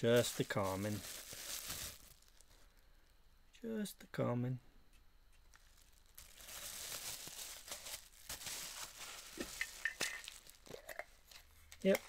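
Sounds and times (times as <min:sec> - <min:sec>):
plastic bag crinkling: 0:00.0 - 0:02.8, 0:05.5 - 0:11.9.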